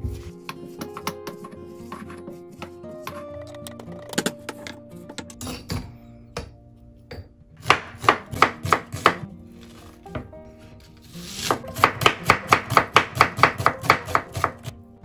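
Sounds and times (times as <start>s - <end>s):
knife slicing onion on board: 0.1s - 3.4s, 7.6s - 9.2s, 11.0s - 14.8s.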